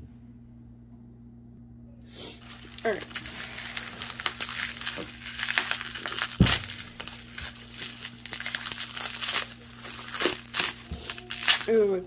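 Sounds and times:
faint steady hum: 0.0s - 12.0s
bubble wrap crinkling: 2.2s - 12.0s
dull thump: 6.3s - 6.8s.

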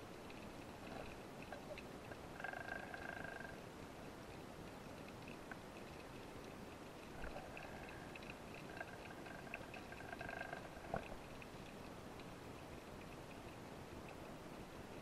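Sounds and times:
low underwater hiss: 0.0s - 15.0s
ticks and crackles: 0.0s - 15.0s.

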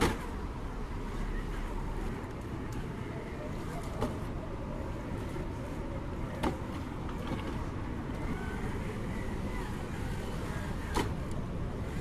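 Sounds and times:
faint electric motor whine: 7.1s - 12.0s.

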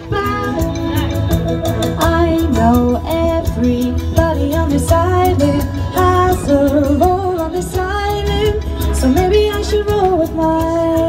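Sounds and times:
pop music over sound system: 0.0s - 11.0s
woman singing into microphone: 0.0s - 11.0s.

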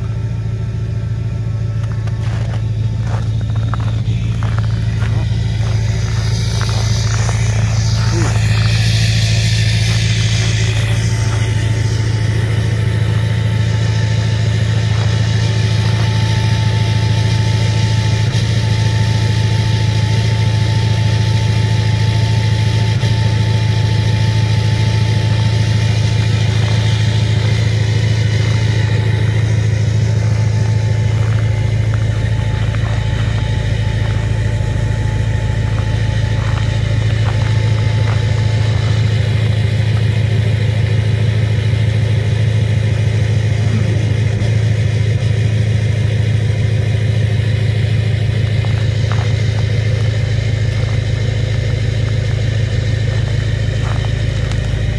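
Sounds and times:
diesel engine idling rough: 0.0s - 54.9s.

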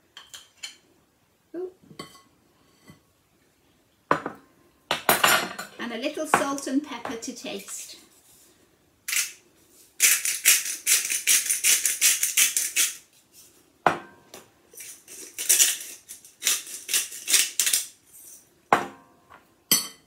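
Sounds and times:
pepper mill grinding clicks: 9.1s - 9.4s, 10.0s - 13.0s.

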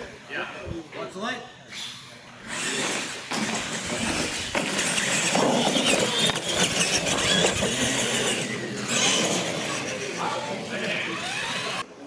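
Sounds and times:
small electric motors whining: 2.4s - 11.9s
tyre noise on concrete: 2.7s - 9.8s.

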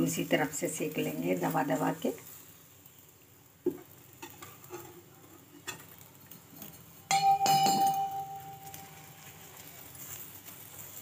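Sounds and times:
ringing clang of steel utensil: 7.1s - 9.0s
metal utensils tapping and clinking: 7.1s - 9.2s.

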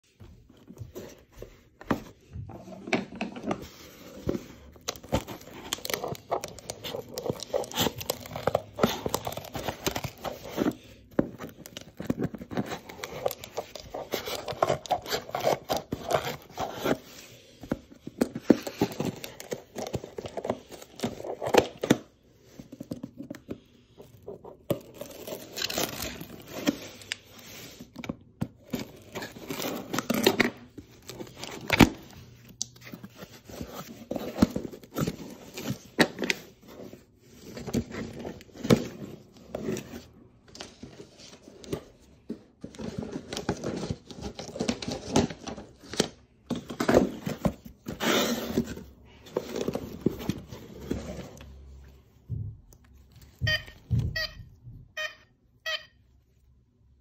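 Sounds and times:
cardboard tearing: 4.8s - 10.8s.

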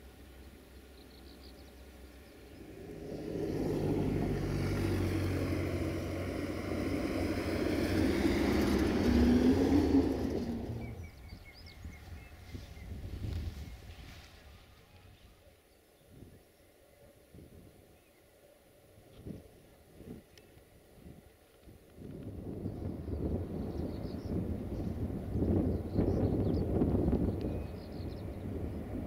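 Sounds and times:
small birds chirping: 0.3s - 14.3s, 22.6s - 29.0s
vehicle driving past: 2.0s - 11.2s.

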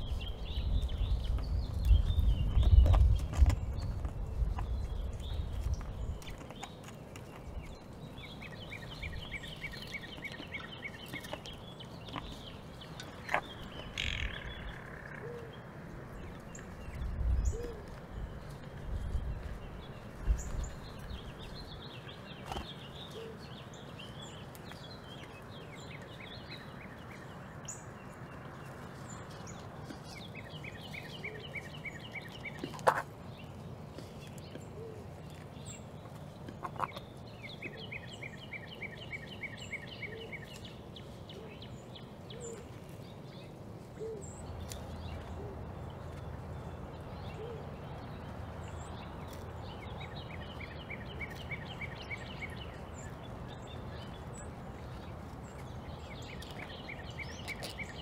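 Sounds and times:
outdoor background noise: 0.0s - 58.0s
bird trilling: 13.8s - 15.5s.

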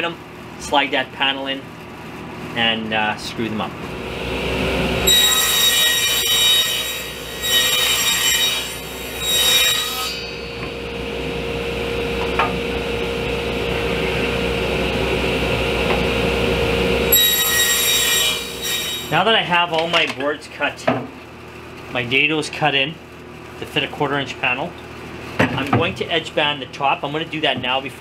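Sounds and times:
table saw motor hum: 3.9s - 19.2s
saw cutting whine: 3.9s - 19.3s.

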